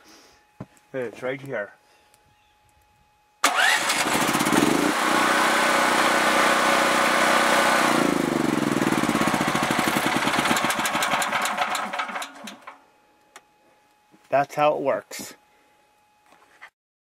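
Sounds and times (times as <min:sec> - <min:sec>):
small generator engine running: 0:03.4 - 0:12.8.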